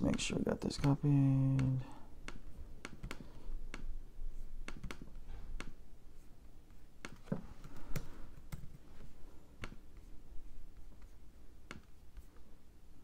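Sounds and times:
mouse and keyboard clicks: 4.6s - 5.8s.

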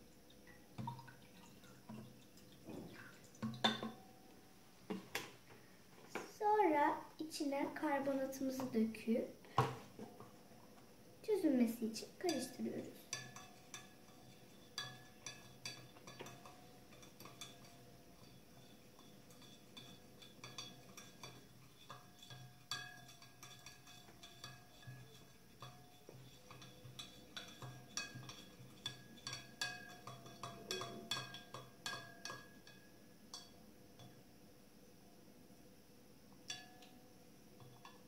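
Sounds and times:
spoon stirring water: 0.0s - 4.2s, 7.9s - 9.0s, 11.6s - 34.2s, 36.4s - 37.0s, 37.6s - 38.0s
spoon clinking on glass: 19.0s - 25.0s, 26.5s - 34.2s, 36.5s - 36.9s.

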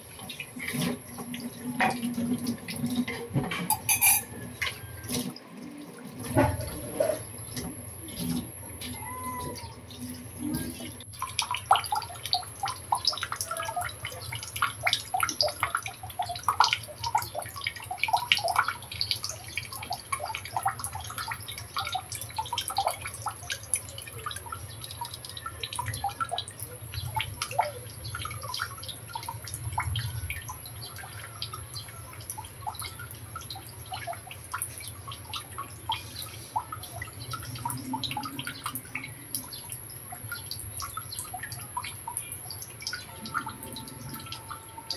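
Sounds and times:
syrup bubbling in a wok: 10.2s - 44.2s.

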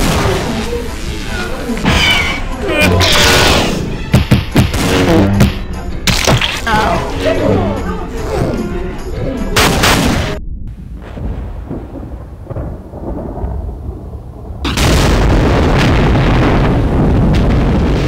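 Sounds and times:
rumbling explosion blast: 9.6s - 18.0s.

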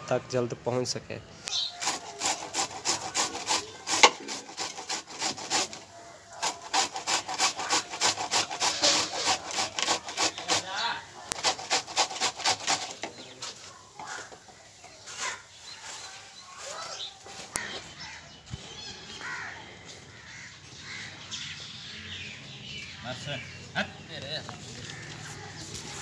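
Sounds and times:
food grated on metal grater: 1.7s - 14.3s.

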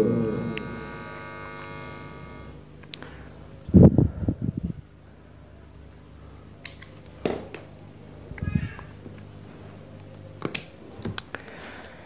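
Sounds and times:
speaker amplifier humming: 0.0s - 12.0s
short pitched cry: 8.4s - 9.0s.

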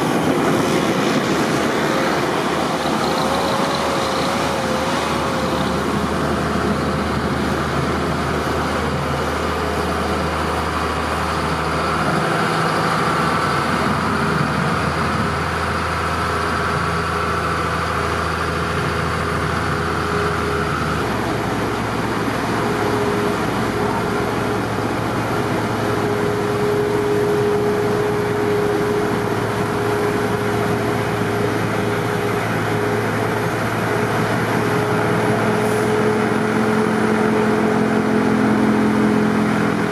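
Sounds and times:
diesel machinery rumbling: 0.0s - 39.9s.

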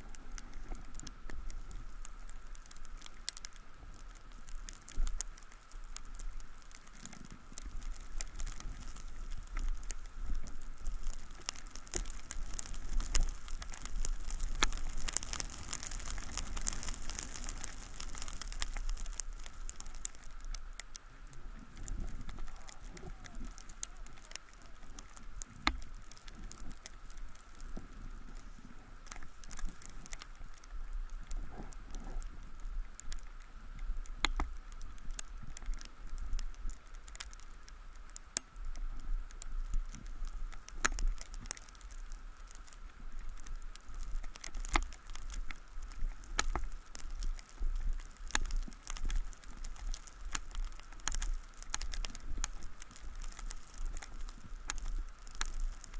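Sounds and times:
faint steady high hum: 0.0s - 55.9s
sharp ticks and knocks: 34.2s - 35.8s, 40.5s - 42.0s.

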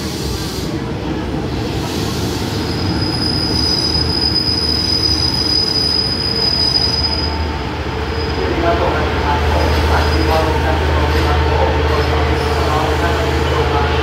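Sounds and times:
diesel train rumbling past: 0.0s - 14.0s
high brake squeal: 2.0s - 7.4s.

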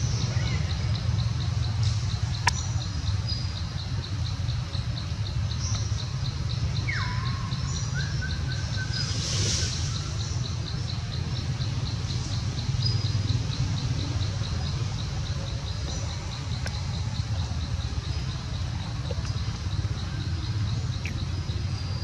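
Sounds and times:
insect chirping: 0.0s - 22.0s
low steady rumble: 0.0s - 22.0s.

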